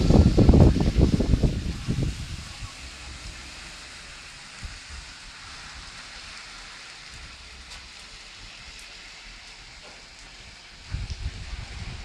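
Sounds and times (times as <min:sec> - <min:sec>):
rain on wet pavement: 0:00.0 - 0:12.0
faint drip ticks: 0:07.1 - 0:11.3.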